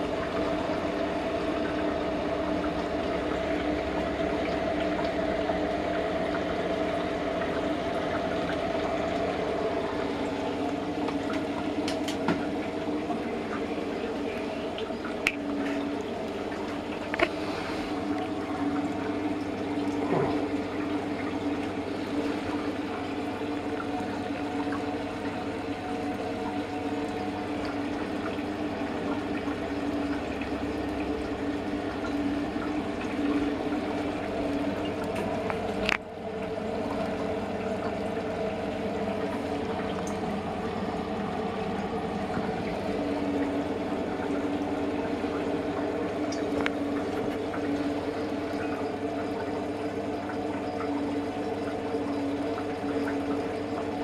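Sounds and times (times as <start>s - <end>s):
liquid rushing: 0.0s - 54.0s
mechanical hum: 0.0s - 54.0s.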